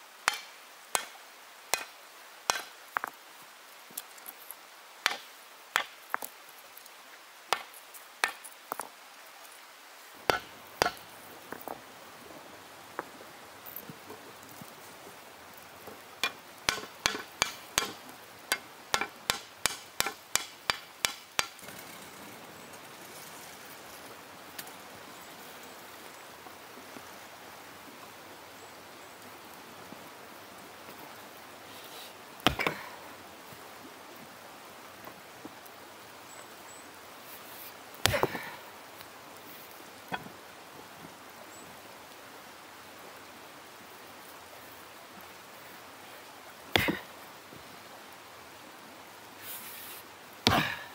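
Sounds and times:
low hiss: 0.0 - 50.9
hammer striking iron on anvil: 10.3 - 11.0, 16.2 - 21.5.

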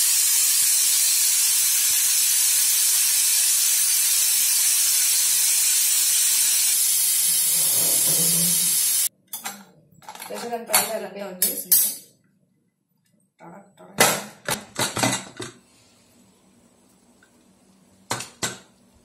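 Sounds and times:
pressure cooker steam hissing: 0.0 - 9.1.

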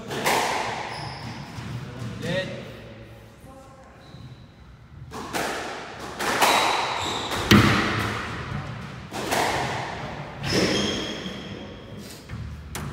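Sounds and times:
squash ball cracks: 5.1 - 10.0.

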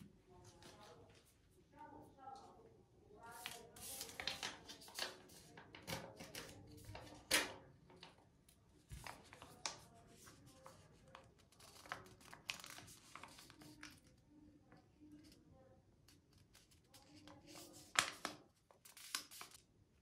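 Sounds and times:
sachet crinkling and crackling: 11.5 - 13.9.

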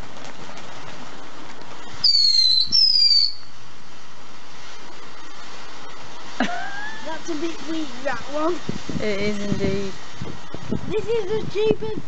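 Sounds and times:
firework fountain hissing: 0.0 - 12.0
high falling firework whistles: 1.8 - 3.5.

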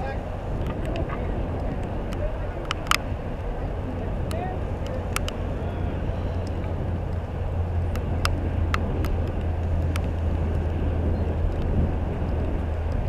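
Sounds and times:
low outdoor rumble: 0.0 - 13.0
sharp ticks: 4.2 - 5.4.

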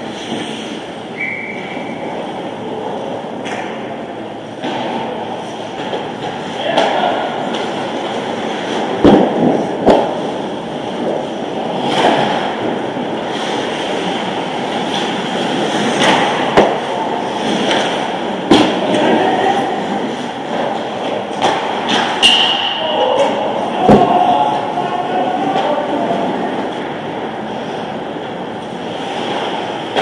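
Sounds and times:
skates scraping on ice: 0.0 - 3.7, 4.6 - 22.3, 23.0 - 30.0
hockey sticks and puck knocking: 5.7 - 12.8, 14.8 - 19.2, 19.8 - 26.9.

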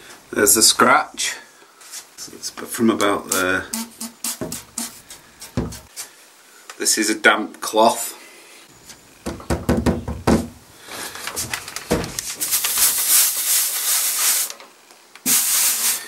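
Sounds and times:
steam iron hissing: 3.7 - 5.9, 15.2 - 16.0
iron knocking on surface: 3.8 - 5.9.

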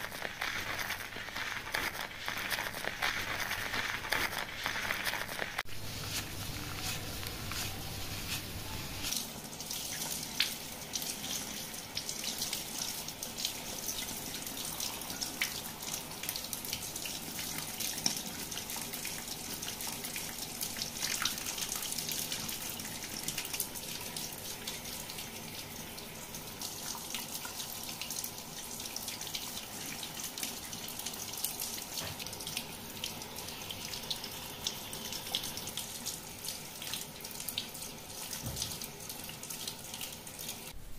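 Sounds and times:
shower sprayer water splashing: 0.0 - 40.8.

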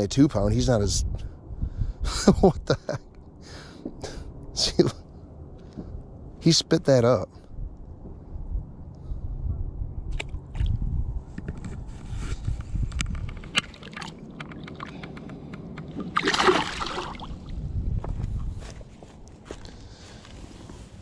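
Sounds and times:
low rumble: 0.3 - 21.0
water sloshing: 13.4 - 15.3, 15.9 - 17.6
fish splashing in water: 16.0 - 17.4.

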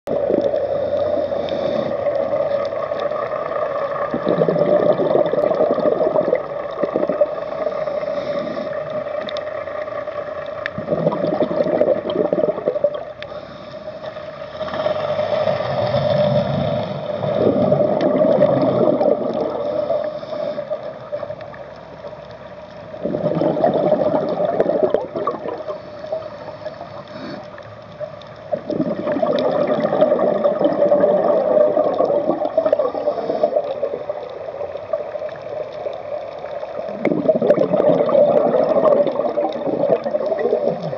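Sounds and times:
bubbles gurgling underwater: 0.1 - 0.7, 1.5 - 7.8, 10.7 - 13.2, 15.7 - 20.1, 23.0 - 25.8, 28.5 - 40.9.

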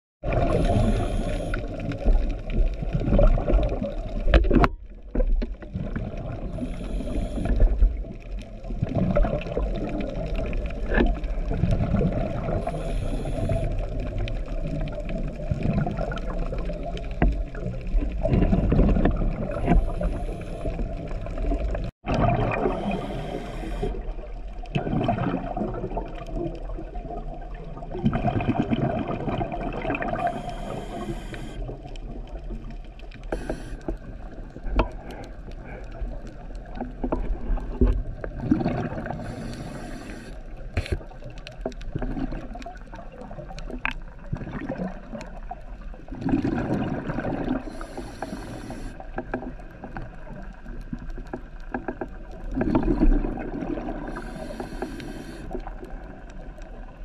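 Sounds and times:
underwater rumbling and bubbles: 0.2 - 57.0
regulator breathing hiss: 0.5 - 1.8, 6.5 - 7.6, 12.6 - 13.8, 19.6 - 20.9, 22.7 - 24.0, 30.2 - 31.7, 33.3 - 33.9, 39.2 - 41.0, 47.7 - 49.0, 54.1 - 55.6.

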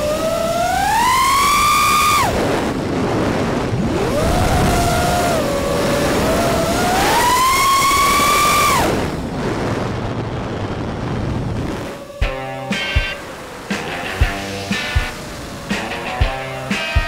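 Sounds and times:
quadcopter motors whining: 0.0 - 9.6
rushing noise: 0.0 - 17.0.

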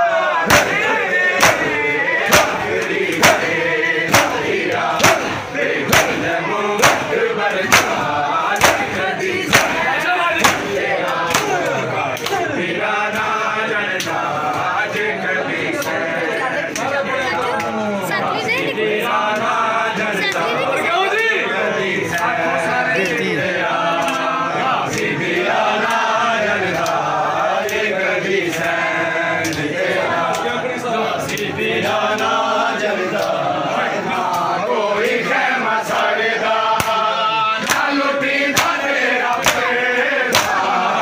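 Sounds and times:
men chanting together: 0.0 - 41.0
palms slapping bare chests: 0.5 - 12.5, 36.7 - 40.8.

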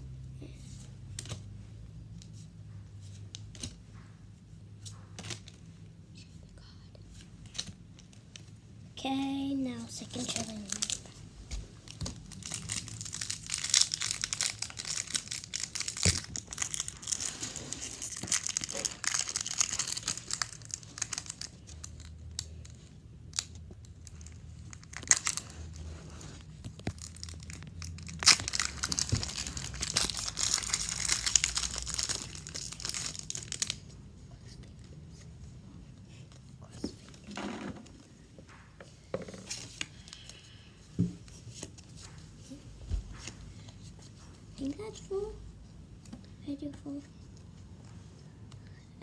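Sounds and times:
foil wrapper crinkling and tearing: 12.2 - 25.8, 26.7 - 33.9.

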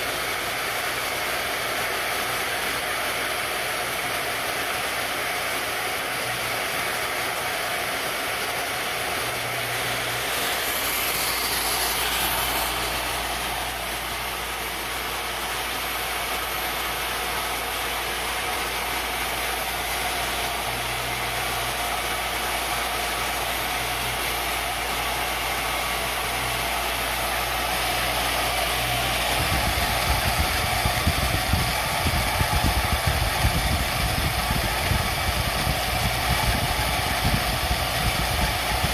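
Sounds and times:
milling machine cutting wood: 0.0 - 38.9.

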